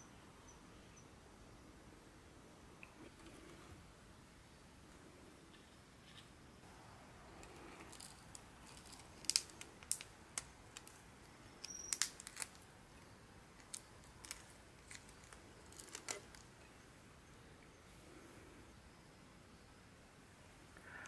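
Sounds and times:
prawn shell cracking: 0:07.4 - 0:16.5.

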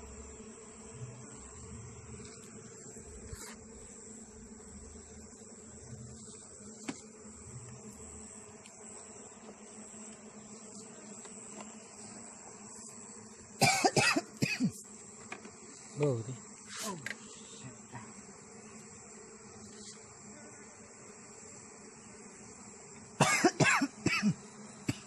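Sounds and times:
honeybees buzzing: 0:00.0 - 0:25.0
person coughing: 0:13.6 - 0:14.8, 0:23.2 - 0:25.0.

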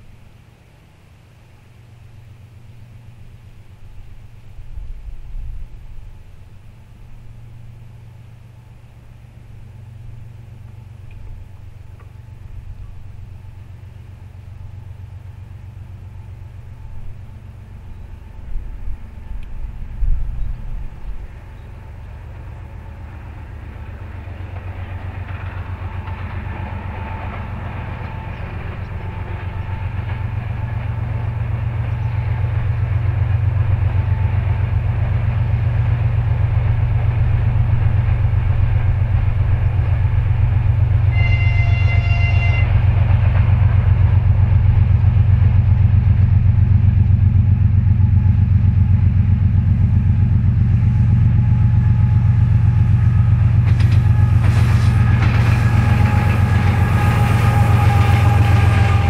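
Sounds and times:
diesel locomotive engine drone: 0:00.0 - 0:59.0
train horn blast: 0:09.7 - 0:35.1, 0:37.8 - 0:45.5, 0:48.0 - 0:59.0
wheels clattering over rails: 0:23.1 - 0:59.0.

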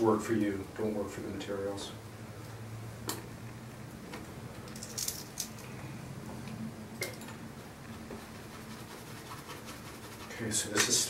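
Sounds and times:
brush dabbing paint: 0:07.6 - 0:11.0.

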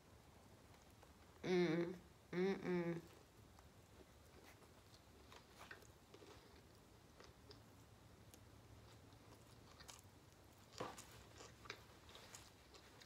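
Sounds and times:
person chewing: 0:03.6 - 0:13.0.

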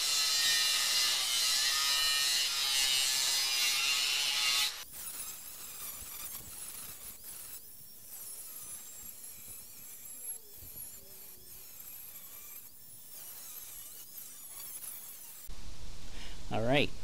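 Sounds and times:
angle grinder cutting steel: 0:00.0 - 0:15.5.

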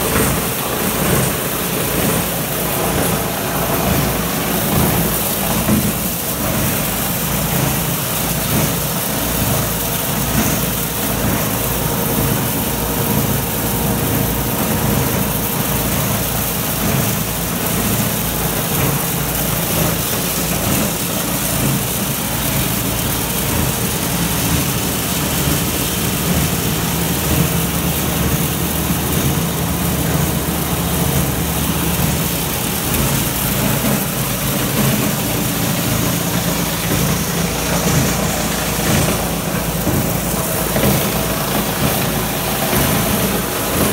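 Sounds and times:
machinery droning: 0:19.3 - 0:43.9.

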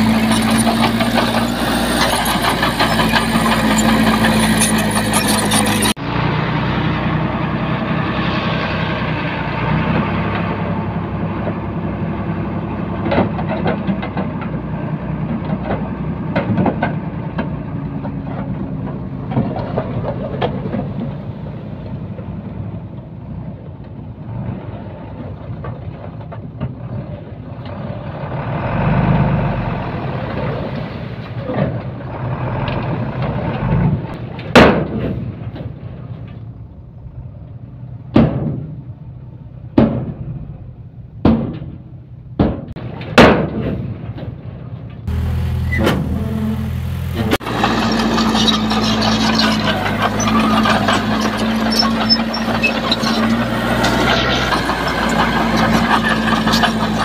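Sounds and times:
diesel machine engine running: 0:00.0 - 0:15.3, 0:44.8 - 0:57.0.

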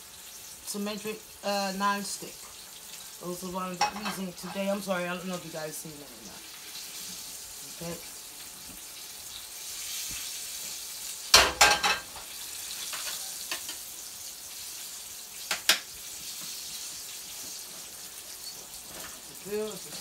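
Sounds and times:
meat sizzling in a pan: 0:00.0 - 0:20.0
metal pan clanking on stove grate: 0:11.3 - 0:12.1.

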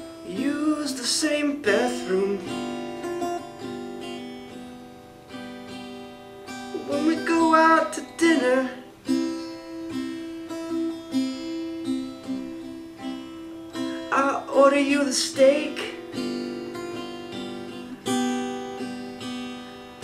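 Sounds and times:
person singing: 0:00.0 - 0:03.7, 0:06.7 - 0:11.8, 0:13.7 - 0:18.2
acoustic guitar strumming: 0:00.0 - 0:20.0.

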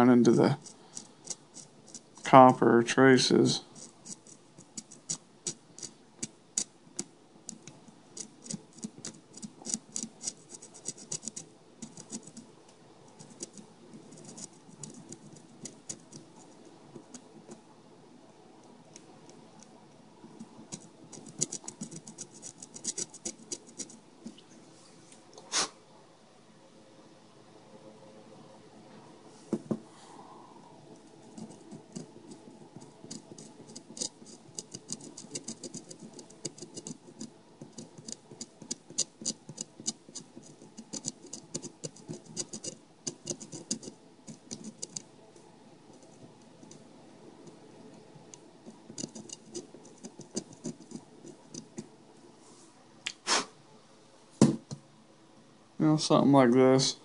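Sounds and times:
knife scratching circuit board: 0:00.3 - 0:02.1, 0:03.7 - 0:12.4, 0:13.2 - 0:17.2, 0:20.6 - 0:24.0, 0:31.2 - 0:45.0, 0:48.7 - 0:51.8
louder knock: 0:54.4 - 0:54.6.

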